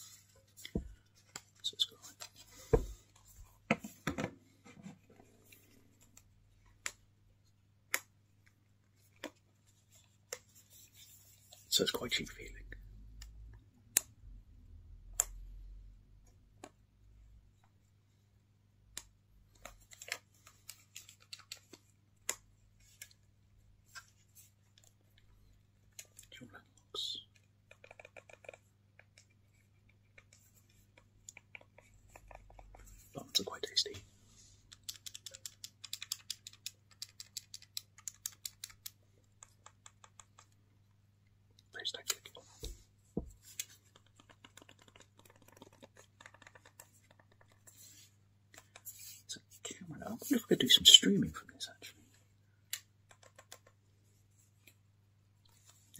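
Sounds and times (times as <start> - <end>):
plastic console clicks and taps: 27.3 - 32.8, 34.7 - 40.6, 42.0 - 47.8, 52.7 - 53.8
hands rubbing plastic: 42.0 - 49.3.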